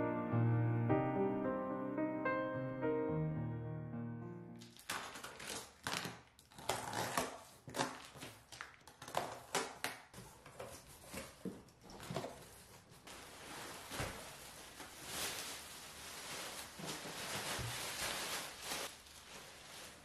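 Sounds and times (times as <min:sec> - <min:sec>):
plastic wrapping rustling: 0:04.6 - 0:20.0.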